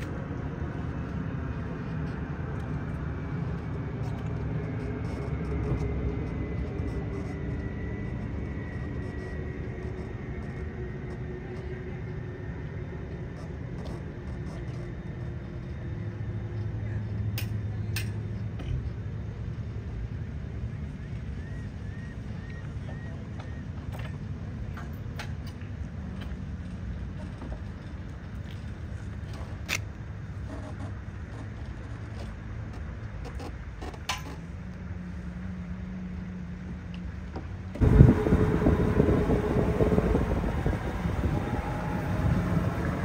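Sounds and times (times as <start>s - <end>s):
engine idling: 37.8s - 43.0s.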